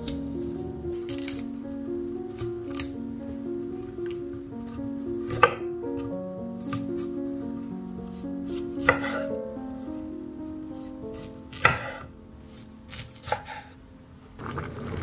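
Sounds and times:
soft background music: 0.0 - 14.4
knife chopping on wooden board: 5.3 - 5.7, 8.8 - 9.2, 11.2 - 12.1, 12.9 - 13.7.

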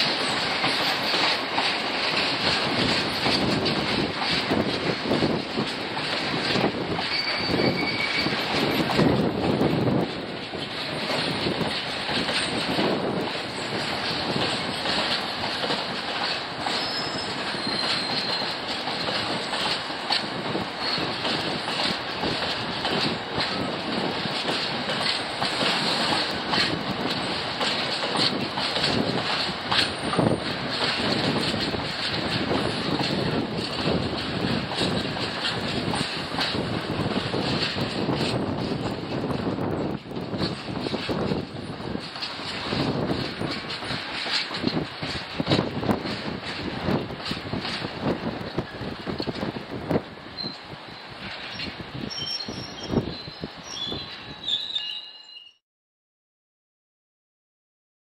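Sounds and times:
train wheels clattering over rail joints: 0.0 - 54.4
high wheel squeals: 7.0 - 8.4, 16.7 - 18.5, 50.4 - 55.6.

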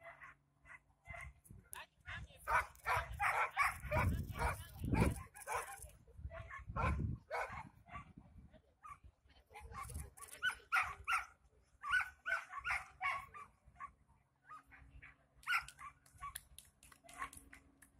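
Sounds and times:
dog barking: 2.5 - 8.1, 9.8 - 13.9.

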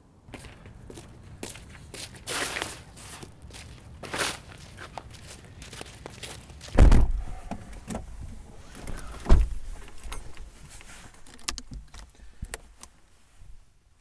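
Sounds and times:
rustling: 1.6 - 13.8
car door shutting: 6.8 - 8.1, 8.8 - 10.2.

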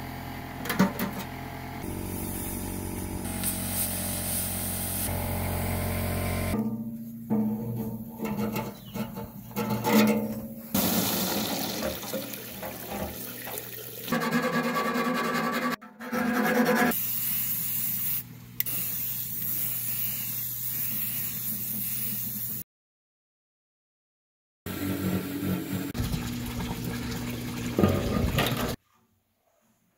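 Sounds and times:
aerosol spray can hissing: 1.9 - 5.1, 17.0 - 22.6.

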